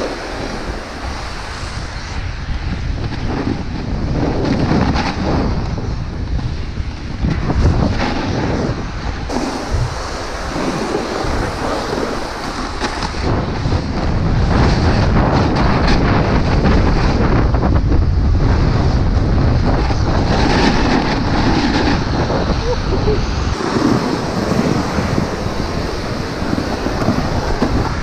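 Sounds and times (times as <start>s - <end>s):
snowboard scraping over snow: 0.0s - 28.0s
wind buffeting microphone: 0.0s - 28.0s.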